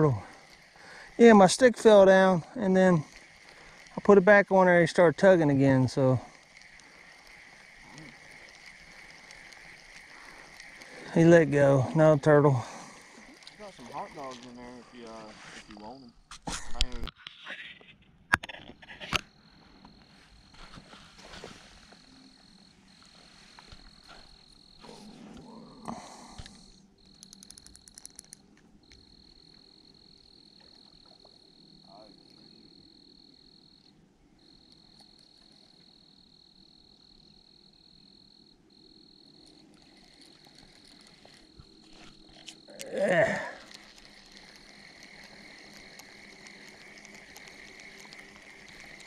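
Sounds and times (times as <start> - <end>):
cricket trilling: 0.0 - 17.1, 18.5 - 49.0
quick run of clicks: 27.1 - 29.0, 43.6 - 49.0.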